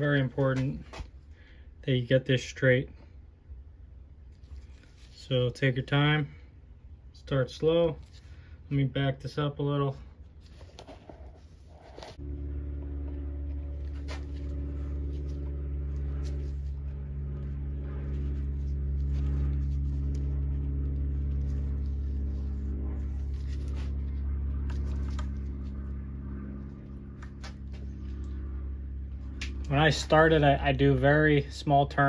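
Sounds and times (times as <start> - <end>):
low machine hum: 0.0 - 32.0.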